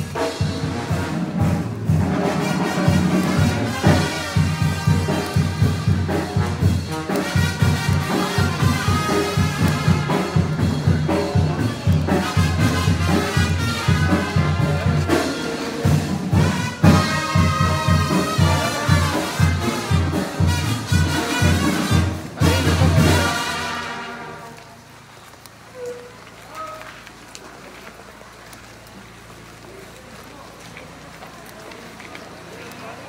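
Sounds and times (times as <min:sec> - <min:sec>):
bass drum beat: 0:00.0 - 0:23.9
trumpets and trombones: 0:00.0 - 0:25.1.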